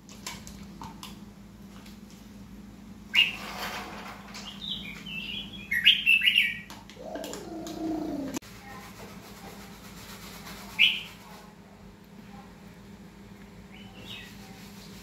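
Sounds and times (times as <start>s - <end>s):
steady low hum: 0.0s - 10.4s.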